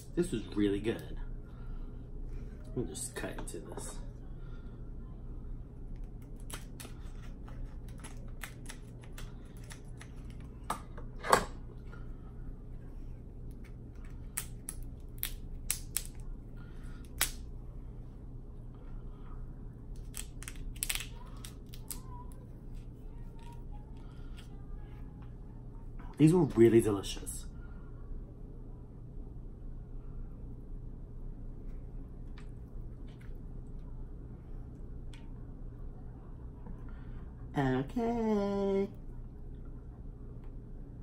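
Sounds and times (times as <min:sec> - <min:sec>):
shell cracking and snapping: 0:05.9 - 0:07.0, 0:07.6 - 0:10.8, 0:13.5 - 0:16.3, 0:17.0 - 0:17.4, 0:19.9 - 0:22.1.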